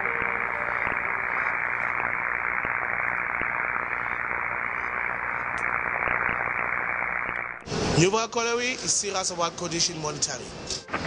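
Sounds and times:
faint crackles: 0.0s - 8.0s
power line corona hiss: 0.0s - 11.0s.

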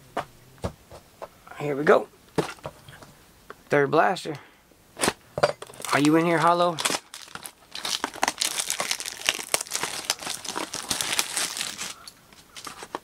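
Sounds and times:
plastic wrapping crinkling and tearing: 5.0s - 13.0s.

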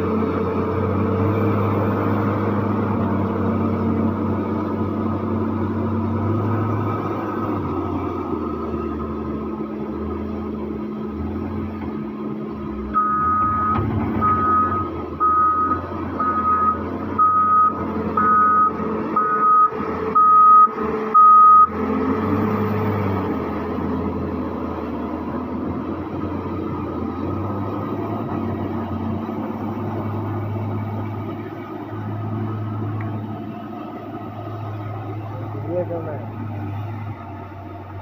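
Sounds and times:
diesel engine running: 0.0s - 38.0s
reverse alarm beeping: 13.0s - 21.7s.

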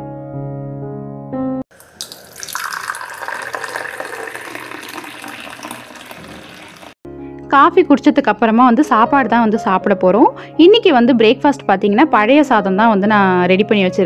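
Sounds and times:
coffee pouring into steel tumbler: 1.7s - 7.0s
soft piano music: 7.1s - 14.0s.

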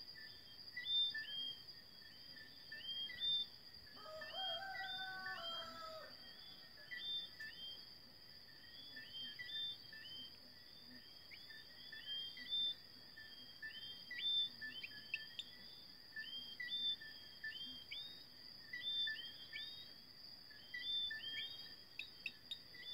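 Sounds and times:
high insect trill: 0.0s - 22.9s.

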